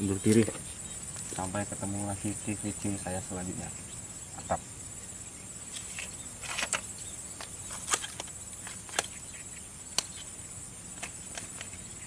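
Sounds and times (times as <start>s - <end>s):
faint high hiss: 0.0s - 12.0s.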